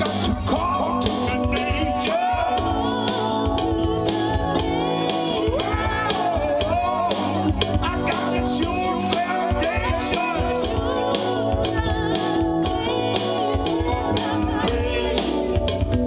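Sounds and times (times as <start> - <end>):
man singing into a microphone: 0.0 - 3.3, 5.2 - 11.8
electronic keyboard: 0.0 - 16.0.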